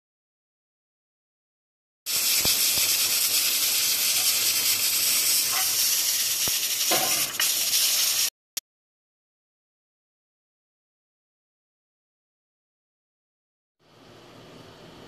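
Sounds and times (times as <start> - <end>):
pressure cooker hissing: 2.1 - 8.3.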